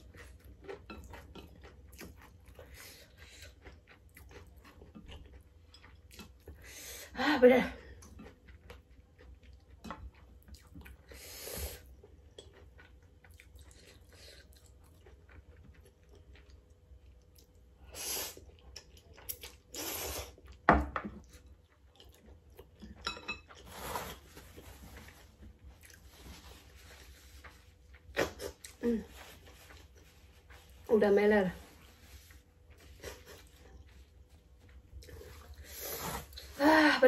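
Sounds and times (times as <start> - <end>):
person chewing and slurping noodles: 0.0 - 6.8, 7.8 - 30.9, 31.7 - 36.6.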